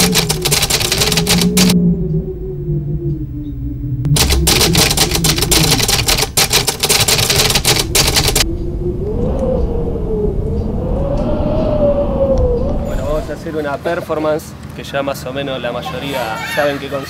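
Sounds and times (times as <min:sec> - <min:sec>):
typewriter keys clacking: 0:00.0 - 0:01.8, 0:04.2 - 0:08.4
low rumble with wavering tone: 0:00.0 - 0:05.9, 0:08.3 - 0:13.6.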